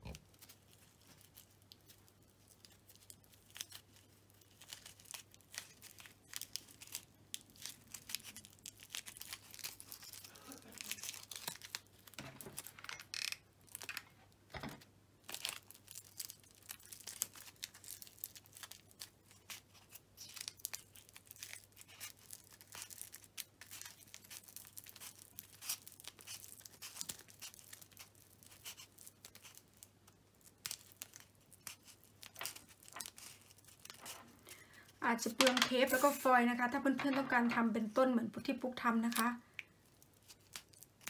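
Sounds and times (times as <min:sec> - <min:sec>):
foil crinkling: 0:00.0 - 0:12.9, 0:15.2 - 0:37.8, 0:38.8 - 0:41.0
adhesive tape pulled off roll: 0:35.8 - 0:36.3.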